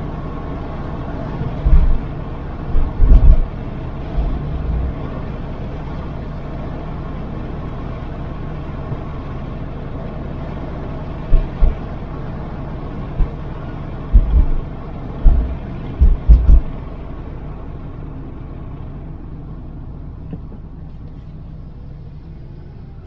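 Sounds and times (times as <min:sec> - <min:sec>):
car road and engine rumble: 0:00.0 - 0:23.0
loud low thumps: 0:02.8 - 0:03.4, 0:11.3 - 0:11.8, 0:14.1 - 0:14.6, 0:15.2 - 0:16.7.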